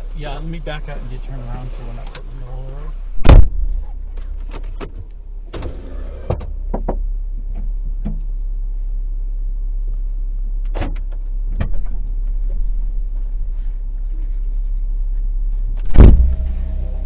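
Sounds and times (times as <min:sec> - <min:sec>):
vehicle engine running low: 0:00.0 - 0:17.0
loud thump: 0:03.2 - 0:03.8, 0:15.8 - 0:17.0.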